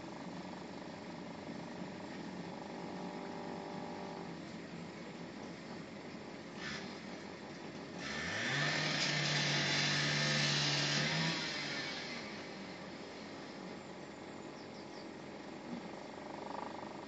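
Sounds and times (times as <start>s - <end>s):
electric power tool spinning: 8.0s - 12.4s.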